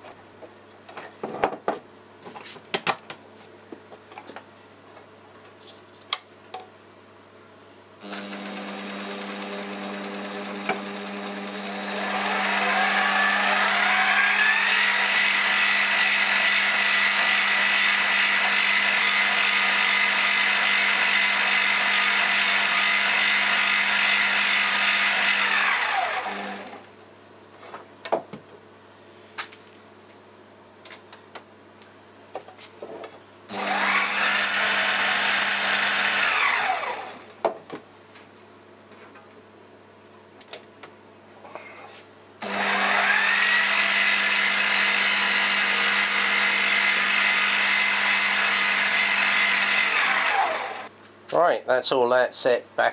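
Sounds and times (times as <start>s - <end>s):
lathe motor whine: 8.0s - 26.9s, 33.5s - 37.3s, 42.4s - 50.9s.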